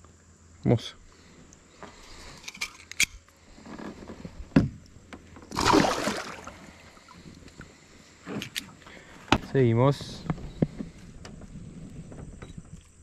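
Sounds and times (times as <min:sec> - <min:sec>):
fish splashing into water: 0:05.5 - 0:07.2.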